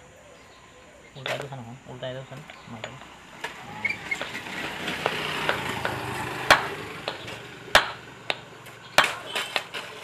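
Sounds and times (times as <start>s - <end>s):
hammer striking metal: 5.0s - 9.6s.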